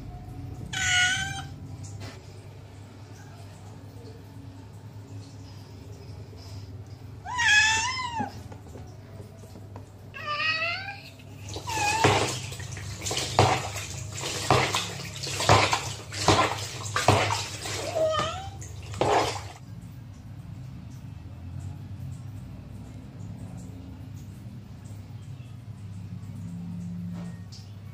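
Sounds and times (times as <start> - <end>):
cat meowing loudly: 0.7 - 1.6, 7.2 - 8.4, 10.2 - 12.4
brush scrubbing wet fur: 11.4 - 19.6.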